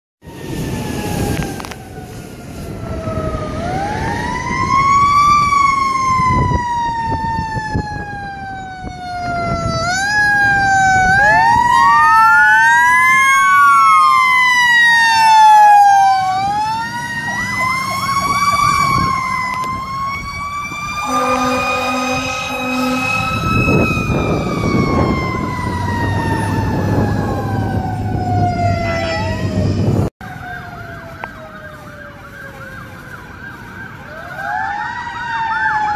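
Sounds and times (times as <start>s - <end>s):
electronic siren wails: 0.2s - 35.9s
truck engine noise: 9.3s - 34.2s
truck horn blasts: 21.0s - 23.8s.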